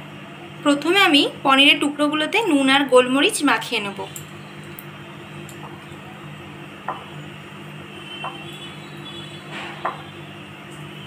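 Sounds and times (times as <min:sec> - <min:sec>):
steady low hum: 0:00.0 - 0:10.7
light knocks on glass bowl: 0:06.9 - 0:07.1.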